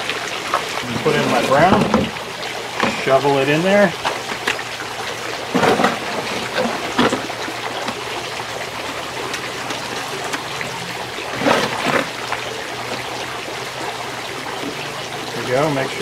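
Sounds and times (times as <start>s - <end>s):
concrete scraping in plastic tub: 0.8s - 2.2s, 5.5s - 8.0s, 11.3s - 12.3s.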